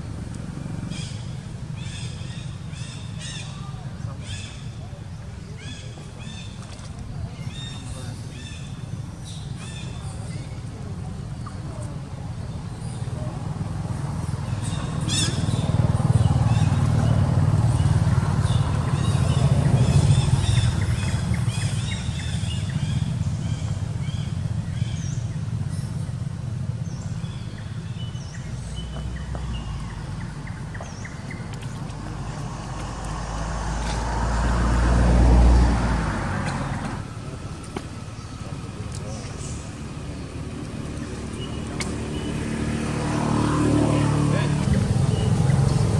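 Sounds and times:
vehicles passing by: 0.0s - 45.9s.

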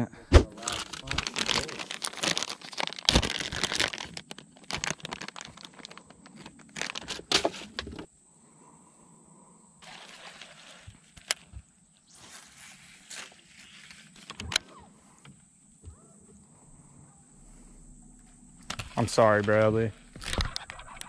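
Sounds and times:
package crinkling: 0.6s - 8.1s.

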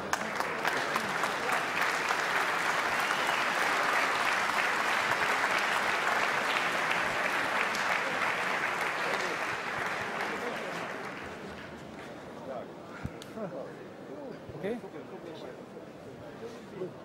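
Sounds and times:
crowd applauding: 0.0s - 11.8s.

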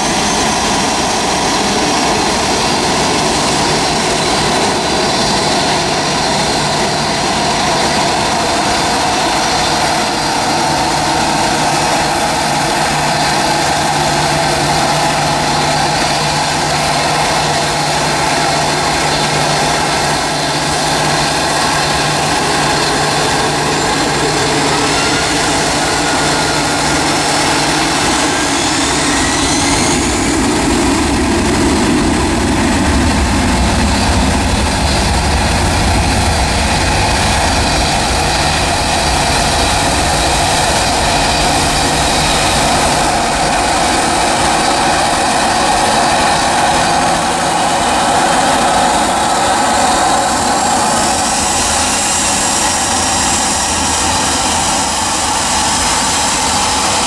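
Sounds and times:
jet engines spooling up: 0.0s - 57.0s.

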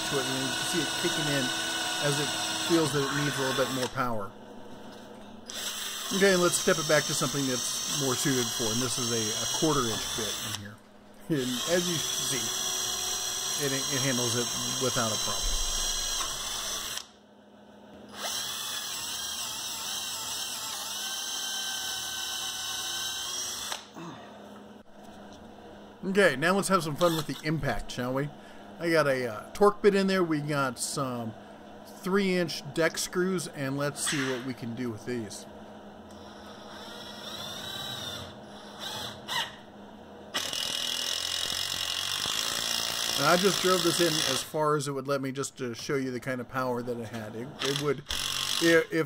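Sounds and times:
cordless drill boring into wood: 0.0s - 4.0s, 5.5s - 10.6s, 11.3s - 17.1s, 18.1s - 23.9s, 27.0s - 27.4s, 36.2s - 39.6s, 40.4s - 44.5s, 47.6s - 48.8s
impact driver motor whir: 5.5s - 10.6s, 11.4s - 17.1s, 18.1s - 24.0s, 36.1s - 39.6s, 40.4s - 44.4s, 47.6s - 48.7s.

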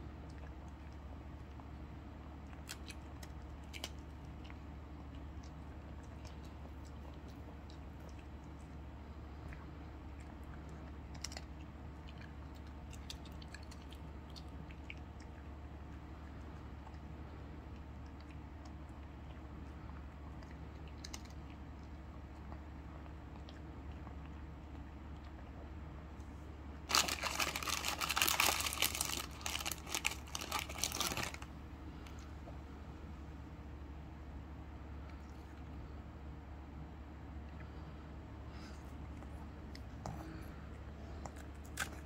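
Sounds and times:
faint low hum: 0.0s - 42.0s
dog crunching dry treats: 2.5s - 4.6s, 10.6s - 14.5s, 20.8s - 21.4s, 26.8s - 31.5s, 41.3s - 42.0s
plastic packaging crinkling: 26.9s - 31.5s.

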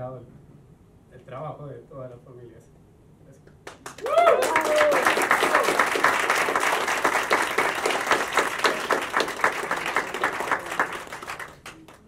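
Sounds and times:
audience applause: 3.8s - 12.0s.

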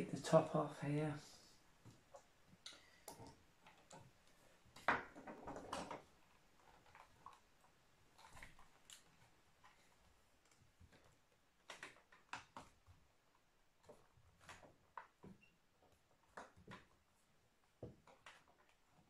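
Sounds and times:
plastic clicks and knocks: 1.8s - 7.4s.

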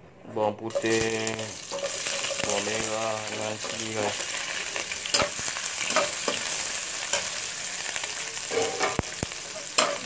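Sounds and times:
metal spatula scraping a pan: 0.7s - 2.7s, 8.5s - 9.0s
food sizzling in hot oil: 0.7s - 10.0s.

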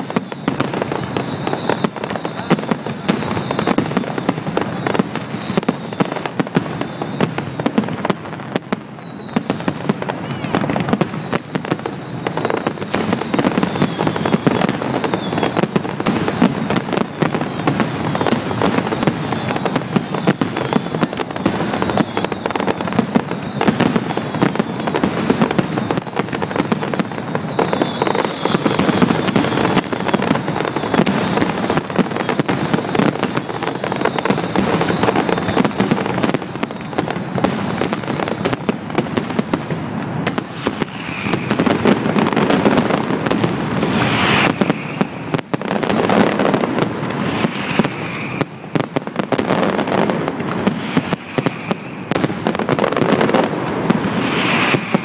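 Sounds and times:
fireworks bangs and crackles: 0.0s - 55.0s
faint rising whistle: 0.1s - 7.5s, 8.7s - 24.7s, 26.9s - 31.0s, 40.6s - 41.8s, 43.9s - 45.3s, 47.4s - 48.5s.

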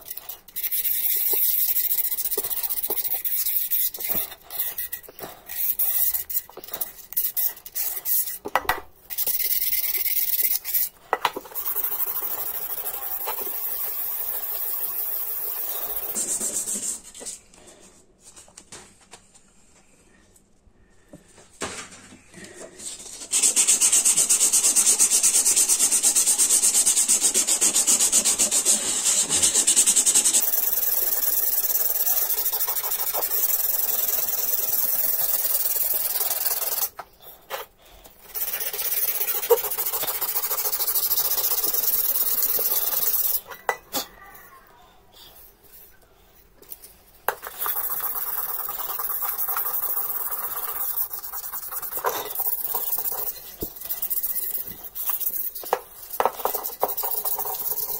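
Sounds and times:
sandpaper scratching on metal: 23.3s - 36.9s, 38.3s - 43.4s, 47.4s - 57.9s.

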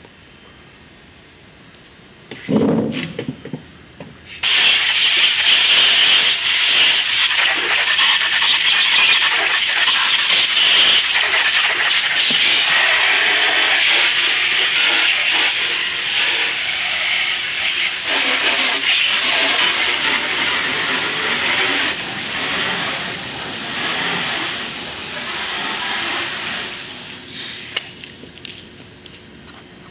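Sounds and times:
sprayer hissing: 4.4s - 28.0s.

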